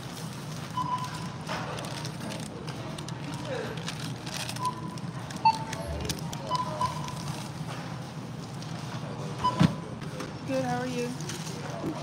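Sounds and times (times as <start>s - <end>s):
steady low hum: 2.4s - 10.0s
short electronic beeps: 4.6s - 7.1s.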